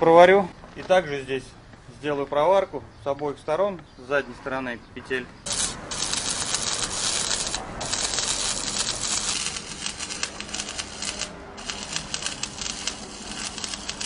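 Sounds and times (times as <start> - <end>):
arc welding crackling sizzle: 5.5 - 14.0.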